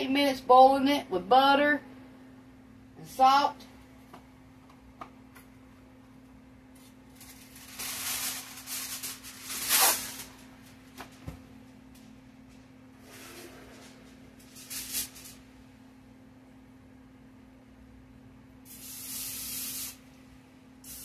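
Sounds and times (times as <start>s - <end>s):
aluminum foil crinkling: 6.8s - 11.2s, 13.8s - 15.4s.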